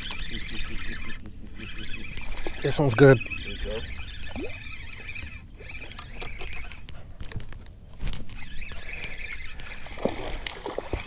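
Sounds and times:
fishing reel cranking: 0.0s - 7.5s
fish splashing: 9.6s - 11.0s.

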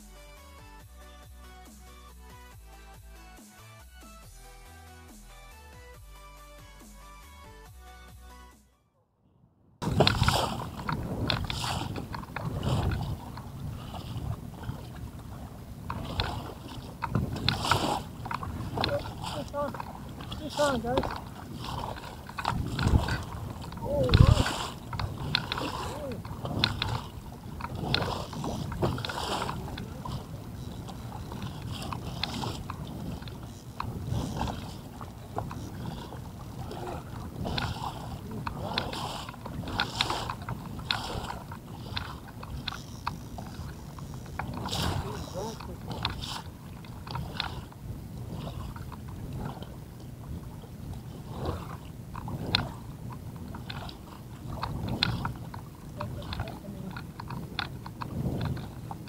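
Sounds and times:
water lapping against boat hull: 9.8s - 59.0s
fishing reel clicking: 9.9s - 14.8s, 15.9s - 47.6s.

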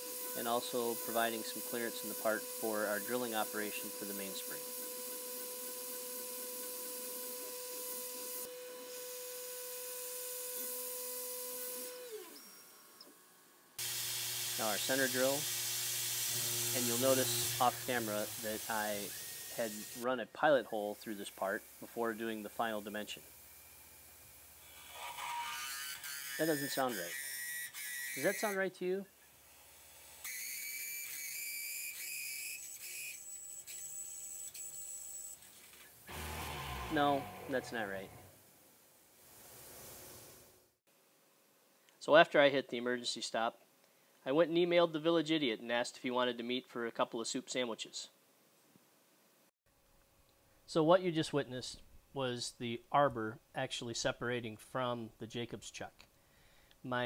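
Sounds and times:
milling machine cutting hiss: 13.8s - 20.0s, 36.1s - 38.3s
drill bit squealing in metal: 24.8s - 28.6s, 30.2s - 35.4s.

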